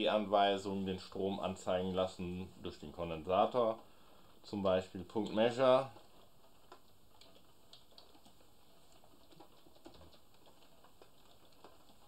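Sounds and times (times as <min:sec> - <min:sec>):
computer keyboard typing: 0:05.2 - 0:12.0.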